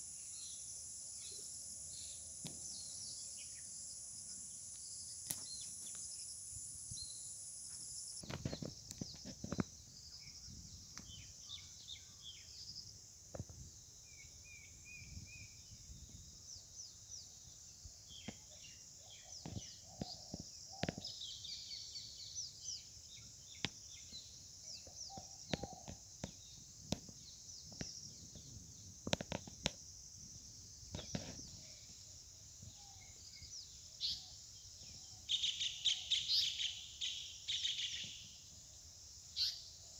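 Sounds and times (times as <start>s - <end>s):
high-pitched insect drone: 0.0s - 10.6s
bird chirps and calls: 35.1s - 38.2s.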